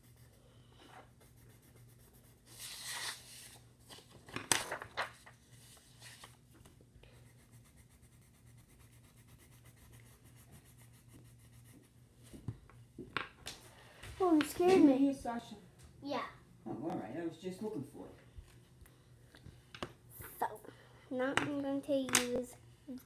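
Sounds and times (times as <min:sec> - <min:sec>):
faint low hum: 0:00.0 - 0:23.0
paper rustling: 0:02.5 - 0:06.7.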